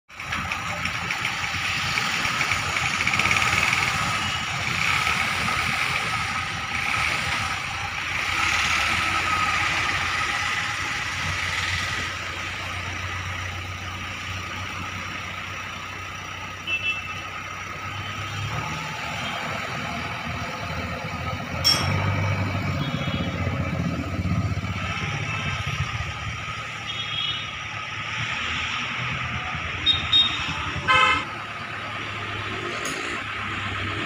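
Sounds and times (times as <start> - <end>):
diesel engine running: 0.1 - 34.0.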